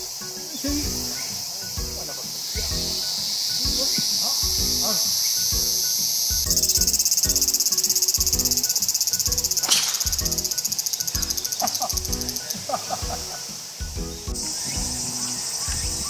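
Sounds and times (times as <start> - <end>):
background music with steady beat: 0.0 - 16.0
insects shrilling chorus: 0.0 - 16.0
sharp click: 9.6 - 10.2.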